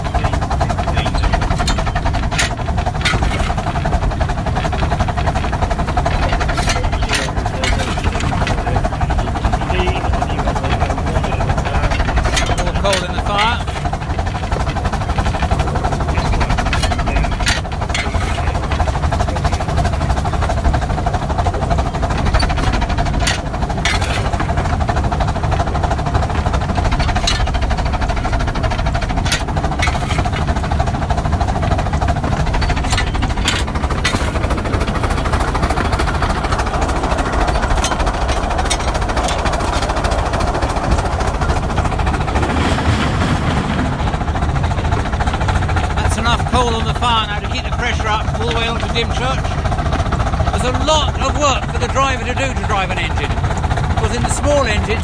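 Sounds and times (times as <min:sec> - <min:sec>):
steam locomotive running noise: 0:00.0 - 0:55.0
sharp metal clanks: 0:00.8 - 0:04.0, 0:04.6 - 0:20.4, 0:21.8 - 0:24.8, 0:26.3 - 0:31.0, 0:31.6 - 0:41.9.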